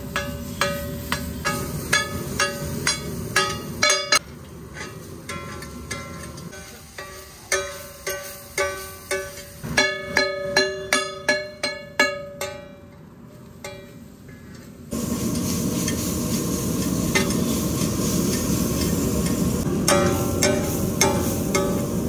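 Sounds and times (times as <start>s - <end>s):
noodles sizzling on griddle: 0.0s - 10.4s, 14.9s - 22.0s.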